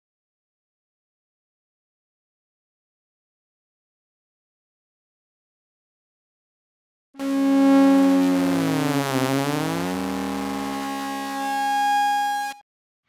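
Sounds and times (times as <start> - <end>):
synthesized electronic tones: 7.2 - 12.6.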